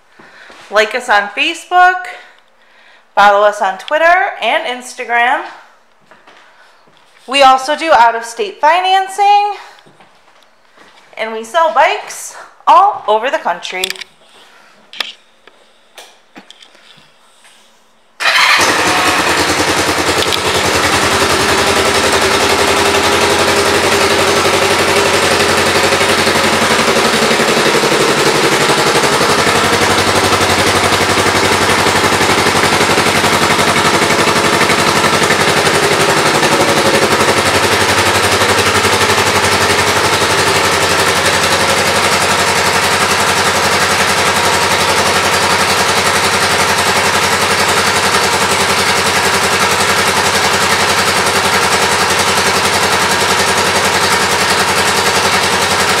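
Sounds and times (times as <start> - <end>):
motorcycle engine idling: 18.2 - 56.0.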